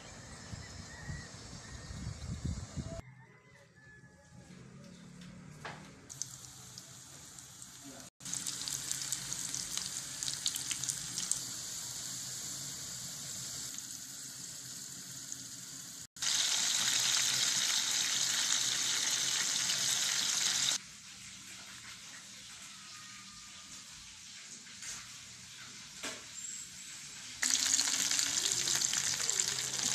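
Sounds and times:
fish frying sizzle: 6.1s - 23.0s, 23.8s - 29.9s
oil sizzling and popping in pan: 6.1s - 23.0s, 27.4s - 29.9s.

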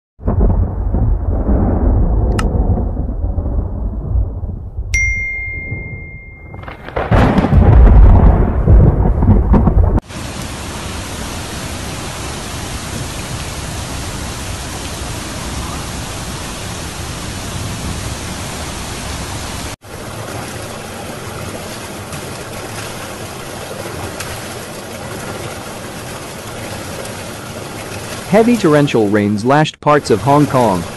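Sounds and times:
loud thunderclap: 0.2s - 4.9s, 6.5s - 10.1s
thunder rumbling: 0.2s - 4.9s, 5.7s - 19.8s
torrential rain: 0.2s - 30.9s
electronic chime: 5.0s - 6.8s
rushing runoff water: 10.0s - 30.9s.

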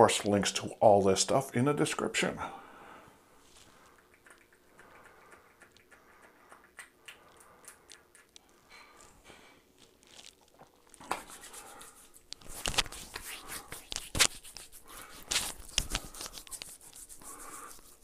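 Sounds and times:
hands rubbing together: 11.0s - 18.0s.

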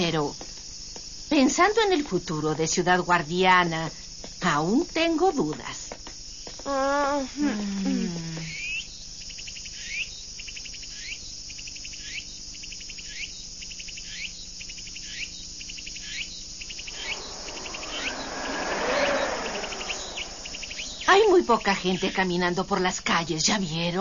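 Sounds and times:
insect chirping with ticking trill: 0.0s - 23.0s
rising whoosh of wind: 16.8s - 22.2s.

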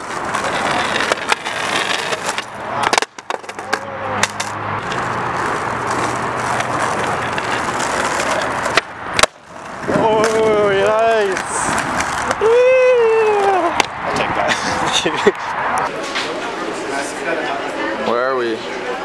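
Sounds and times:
skateboard clacking on ground: 0.0s - 14.7s
skateboard wheels rolling on asphalt: 0.0s - 19.0s.

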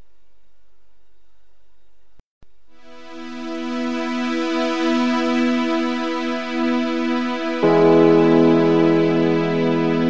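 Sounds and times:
background music held notes: 2.8s - 10.0s.

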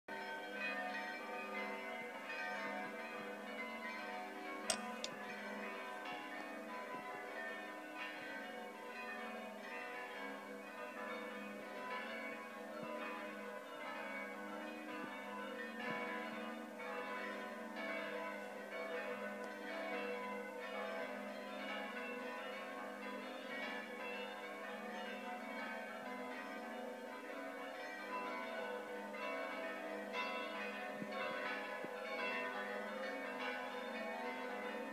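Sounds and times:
church bells ringing: 0.1s - 34.9s
sharp click: 4.7s - 5.1s.

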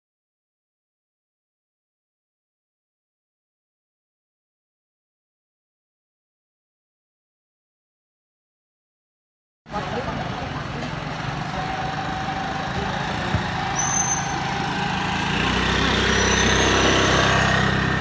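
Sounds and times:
street noise: 9.7s - 18.0s
scooter engine running: 9.8s - 18.0s.

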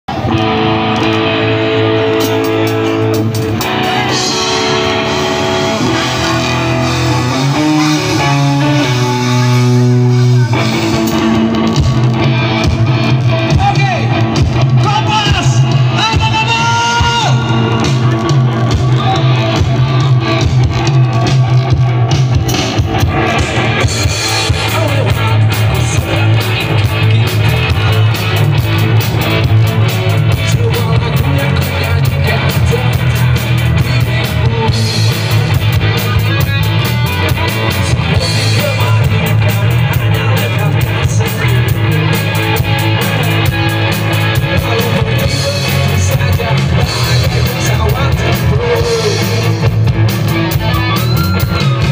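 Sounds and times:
heavy bass: 0.0s - 51.9s
drum kit: 0.1s - 51.9s
electric guitars: 0.1s - 51.9s
person singing into microphone: 44.3s - 49.8s.

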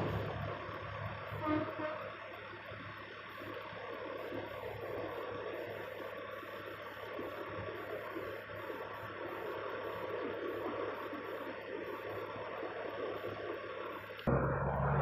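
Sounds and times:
passing traffic: 0.0s - 5.5s, 13.5s - 15.0s
roadworks machinery: 0.0s - 15.0s.

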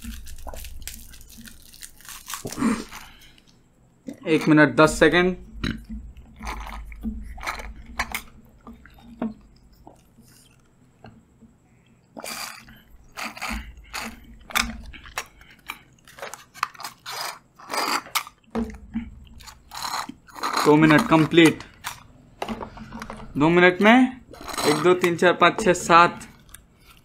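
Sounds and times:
slurping drink through straws: 12.2s - 18.4s, 19.4s - 23.4s, 24.3s - 25.1s
paper cartons crackling: 19.7s - 23.6s.

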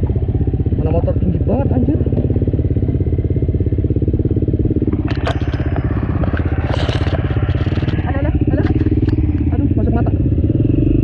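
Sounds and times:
dirt bike engine running: 0.0s - 11.0s
branches scraping against bike: 5.0s - 9.4s.

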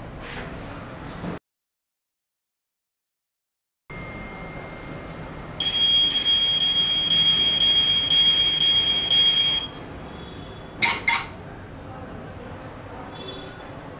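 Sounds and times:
toy car bell-like warning tone: 3.9s - 5.0s, 5.6s - 9.8s.

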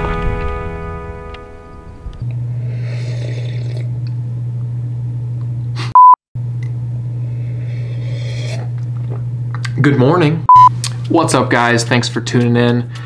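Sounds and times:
low electrical hum: 0.0s - 13.0s
high single-pitch beep: 6.0s - 6.2s.

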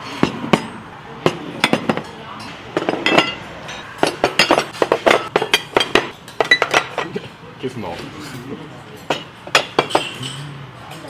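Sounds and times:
plates clinking on wooden table: 0.1s - 7.2s, 9.0s - 10.4s.

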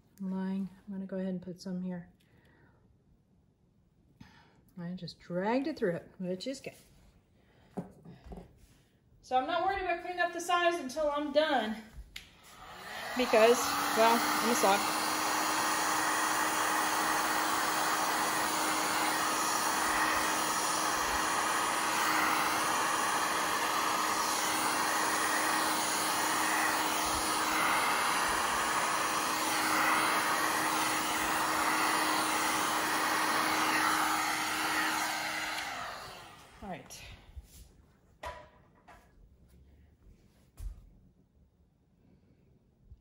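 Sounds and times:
heat gun blowing hot air: 12.2s - 37.0s.

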